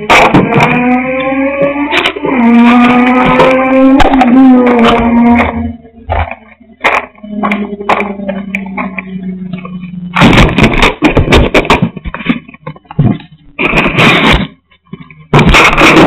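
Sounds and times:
loud rubbing and scraping: 0:00.0 - 0:16.0
microphone handling knocks and clicks: 0:02.8 - 0:16.0
steady low hum: 0:03.8 - 0:15.9.

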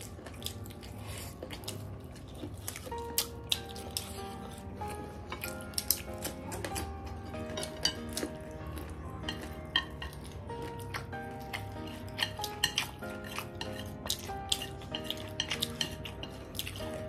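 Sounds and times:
background music with held notes: 0:00.0 - 0:17.0
chopsticks clicking on plates: 0:05.3 - 0:17.0.

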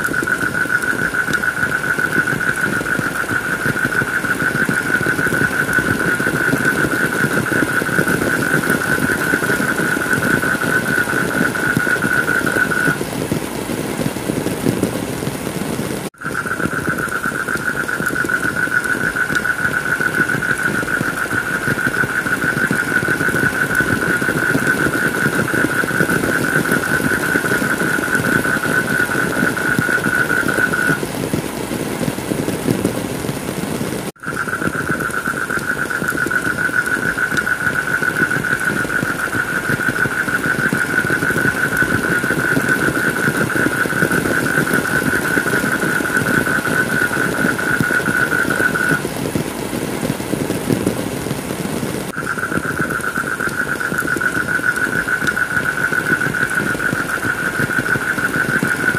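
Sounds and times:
heavy rain: 0:00.0 - 0:58.9
high-pitched whine: 0:52.2 - 0:58.9.

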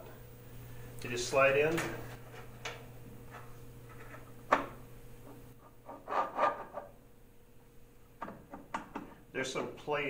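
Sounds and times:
metal scraping on metal: 0:05.6 - 0:06.9.

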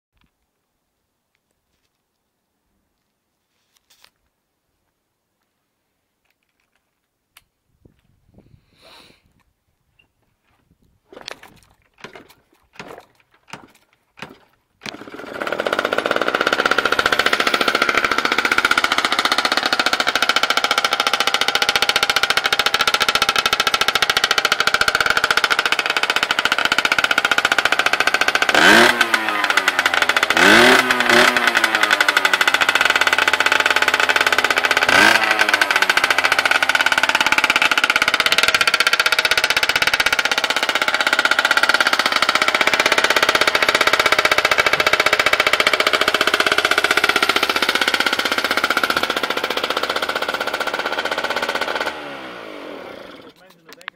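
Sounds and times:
two-stroke engine idling and revving: 0:12.0 - 0:53.9.

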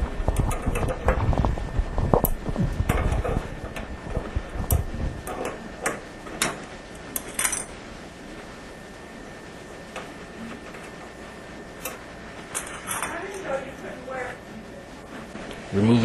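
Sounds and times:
handling rumble: 0:00.0 - 0:05.7.

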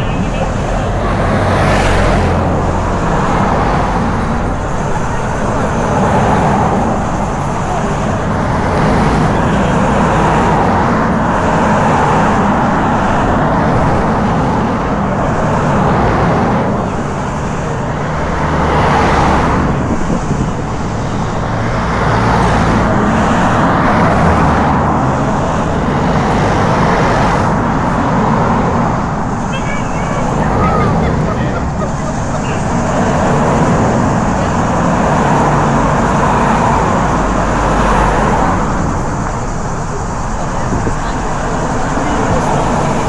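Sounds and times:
cars passing by: 0:00.0 - 0:43.0
low engine hum: 0:00.0 - 0:43.0.

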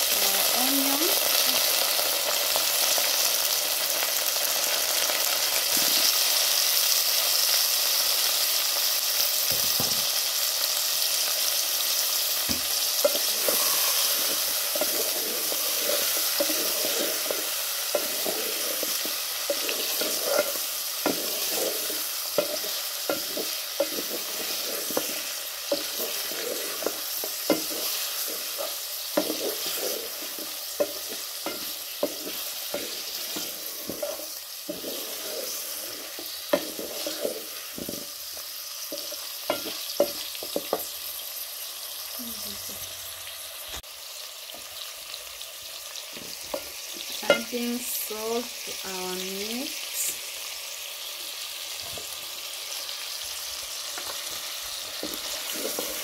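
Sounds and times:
meat and onions sizzling in oil: 0:00.0 - 0:56.0.

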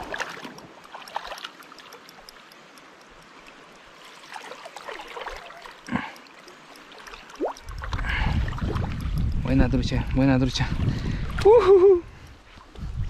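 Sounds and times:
river current flowing: 0:00.0 - 0:12.8
fish splashing at the surface: 0:03.9 - 0:09.0.

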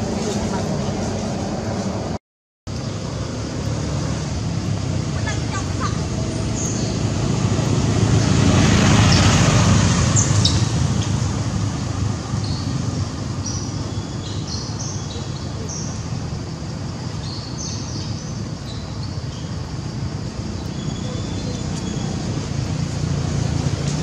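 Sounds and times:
high bird chirps: 0:20.6 - 0:22.2.

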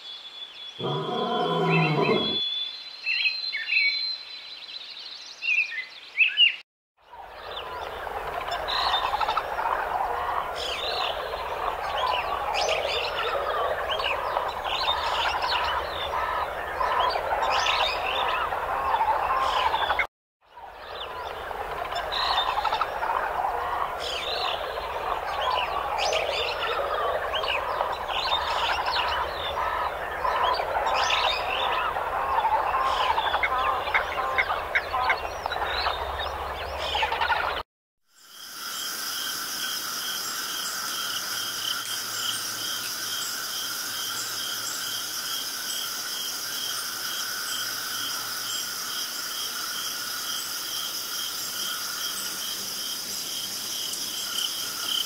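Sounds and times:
chorus of animal calls chattering: 0:00.8 - 0:02.4, 0:07.4 - 0:20.1, 0:20.8 - 0:37.6.

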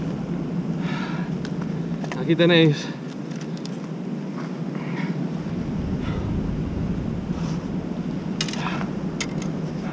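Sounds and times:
wind buffeting microphone: 0:05.2 - 0:09.9.

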